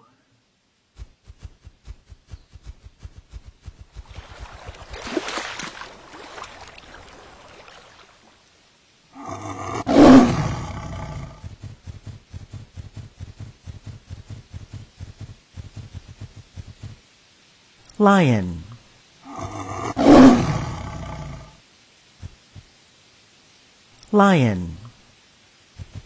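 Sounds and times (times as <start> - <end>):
quick soft thumps: 0.9 - 5.9, 25.8 - 26.0
lion roaring: 9.1 - 11.6, 19.2 - 21.6.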